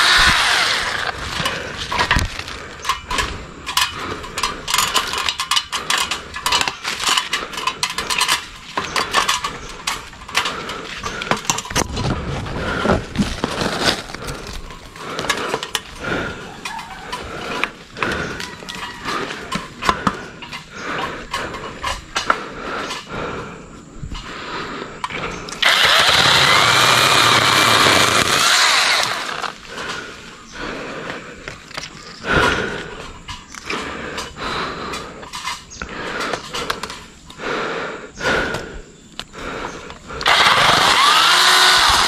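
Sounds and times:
rustling: 11.6s - 15.9s.

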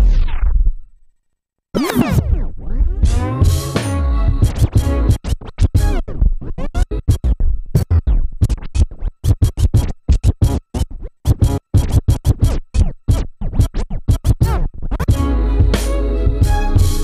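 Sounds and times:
stuttering dj scratch strokes: 1.8s - 15.2s
music loop with held notes: 2.8s - 17.0s.

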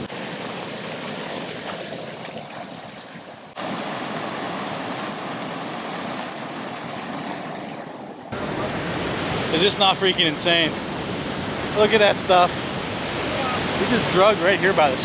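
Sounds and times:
whitewater rushing over spillway: 0.0s - 2.0s, 3.6s - 6.8s, 8.3s - 15.0s.

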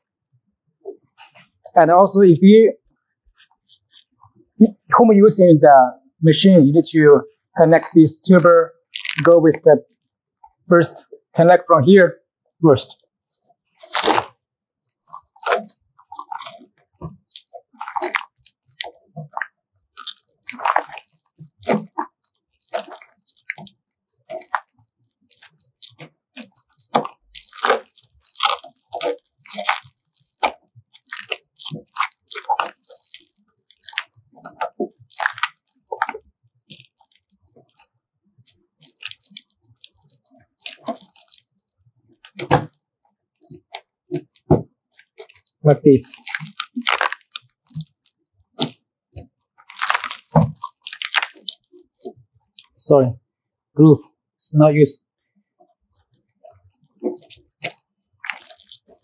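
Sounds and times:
foil duct crinkling and knocking: 13.7s - 14.3s, 14.9s - 37.9s, 43.4s - 48.8s, 49.6s - 52.6s.

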